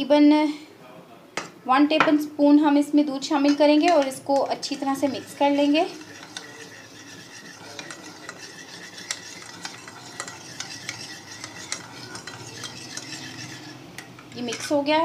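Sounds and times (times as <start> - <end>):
spoon clinking against dish: 6.0 - 14.8.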